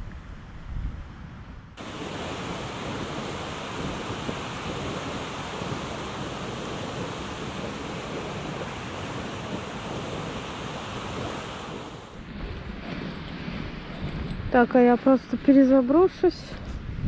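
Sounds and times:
wind buffeting microphone: 0:00.0 - 0:17.0
waves washing against shore: 0:01.8 - 0:14.3.

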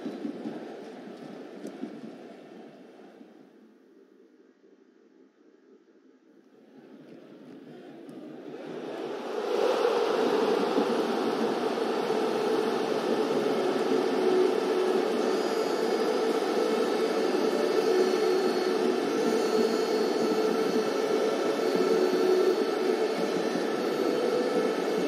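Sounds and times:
faint hum: 0:00.0 - 0:25.0
static noise: 0:08.3 - 0:25.0.

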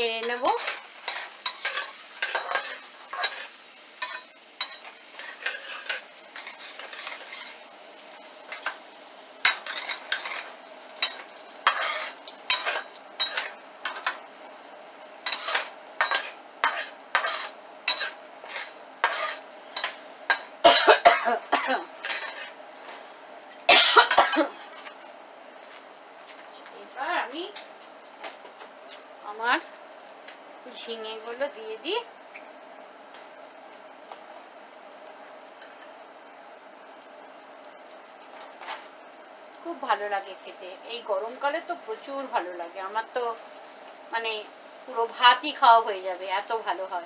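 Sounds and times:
faint sizzle: 0:00.0 - 0:47.0
metal spatula scraping frying pan: 0:00.2 - 0:07.7, 0:08.5 - 0:14.2, 0:15.2 - 0:20.5, 0:22.0 - 0:22.6.

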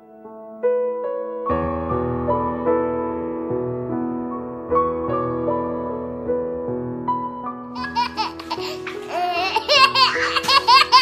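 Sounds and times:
soft piano music: 0:00.0 - 0:11.0
baby laughing: 0:07.8 - 0:11.0.

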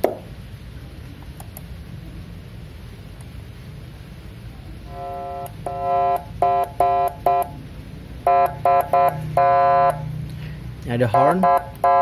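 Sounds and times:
electronic siren horn blasts: 0:04.9 - 0:07.6, 0:08.2 - 0:10.1, 0:11.1 - 0:12.0.

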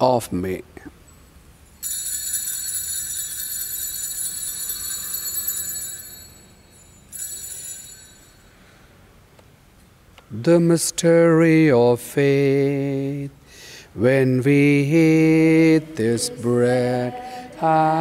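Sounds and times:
altar bells ringing: 0:01.1 - 0:09.0.

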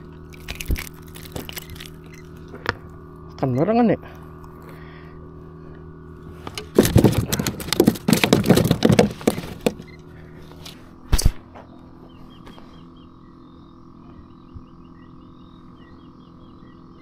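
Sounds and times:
faint steady hum: 0:00.0 - 0:17.0
knocks and rattles: 0:06.5 - 0:09.9.

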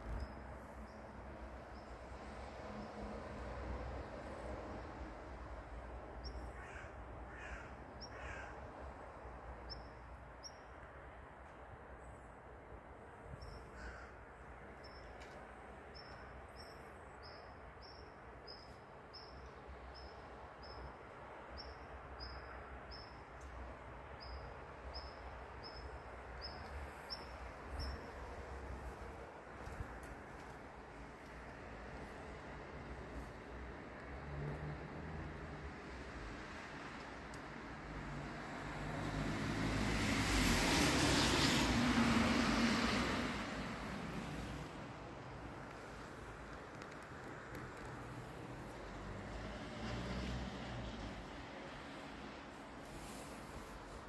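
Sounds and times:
road vehicle passing by: 0:26.4 - 0:54.0.

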